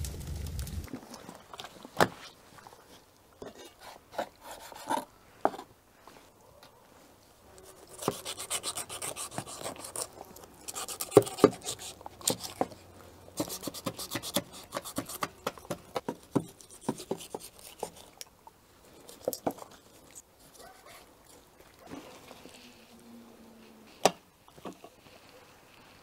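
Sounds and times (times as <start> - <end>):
knife scraping on cutting board: 7.8 - 10.1, 13.4 - 18.1.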